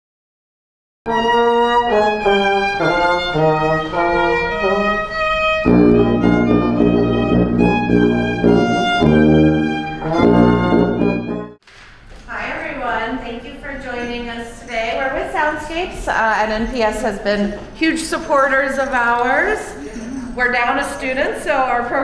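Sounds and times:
violin melody: 0:01.1 - 0:11.6
deep low notes: 0:05.7 - 0:11.6.

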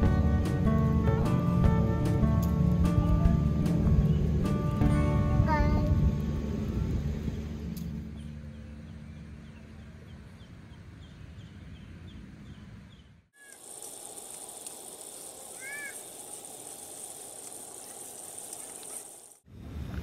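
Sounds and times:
steady high hiss: 0:00.0 - 0:08.5, 0:13.3 - 0:20.0
low rumble: 0:00.0 - 0:10.9
small high chirps: 0:13.4 - 0:19.4
short bird call: 0:15.5 - 0:16.0.

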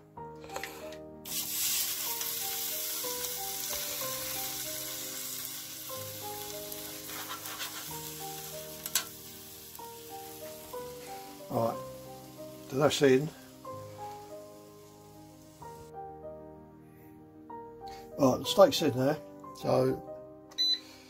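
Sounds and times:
background music with stepping melody: 0:00.0 - 0:21.0
steak sizzling in air fryer: 0:01.2 - 0:15.8.

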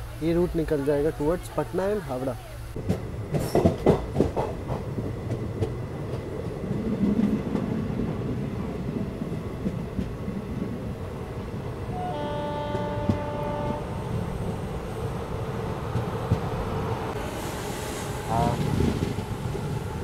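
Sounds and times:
train rumbling: 0:00.0 - 0:20.0
locomotive horn blast: 0:11.9 - 0:14.2.

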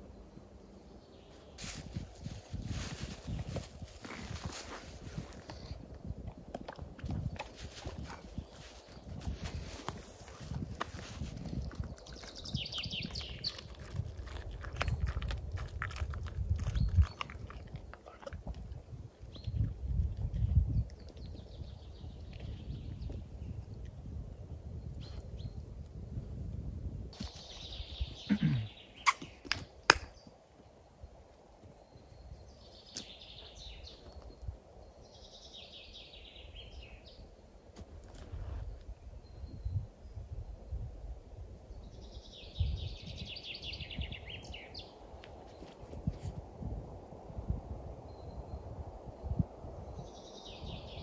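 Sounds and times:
puppy scuffling and mouthing: 0:01.6 - 0:18.7.

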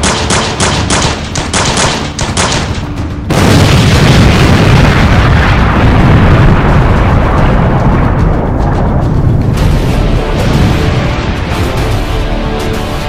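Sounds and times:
action music with driving beat: 0:00.0 - 0:03.6, 0:06.4 - 0:13.0
loud explosion with deep rumble: 0:03.2 - 0:11.8.

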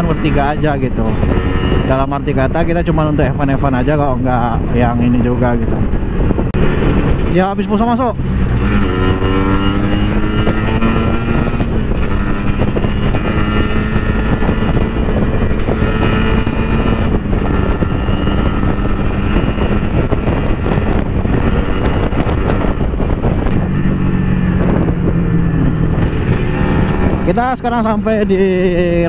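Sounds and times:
motorcycle engine running: 0:00.0 - 0:05.1, 0:05.8 - 0:29.0
wind rushing over microphone: 0:00.0 - 0:29.0.

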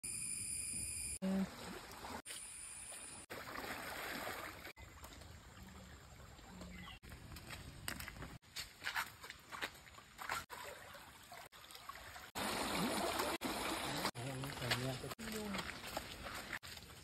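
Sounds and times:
flowing stream water: 0:01.3 - 0:02.4, 0:03.2 - 0:06.9, 0:09.5 - 0:17.0
feet wading through water: 0:03.2 - 0:07.1, 0:08.8 - 0:17.0.

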